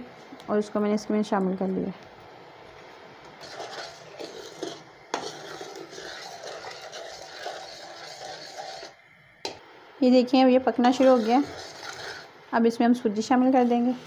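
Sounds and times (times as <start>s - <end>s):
metal spoon stirring in pot: 3.3s - 9.0s, 10.8s - 12.4s.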